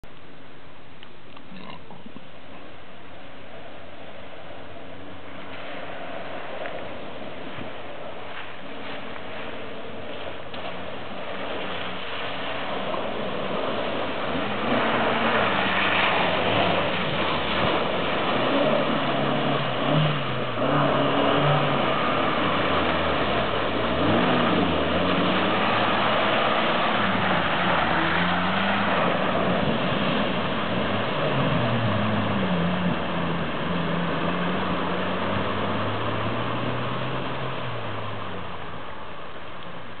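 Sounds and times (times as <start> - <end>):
water sloshing and splashing: 4.8 - 40.0
car engine revving: 13.5 - 38.6.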